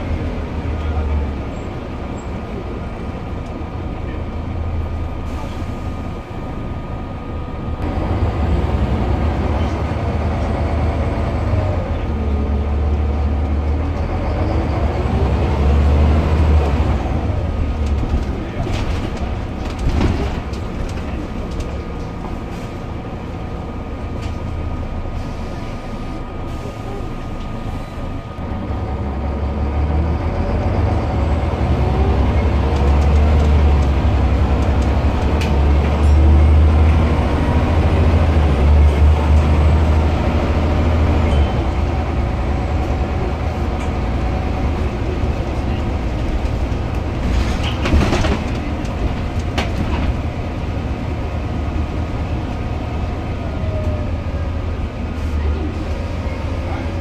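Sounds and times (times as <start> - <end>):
bus diesel engine drone: 0.0 - 57.0.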